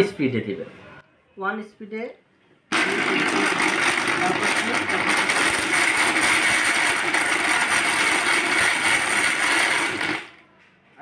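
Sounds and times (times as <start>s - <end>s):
mixer grinder grinding: 2.7s - 10.4s.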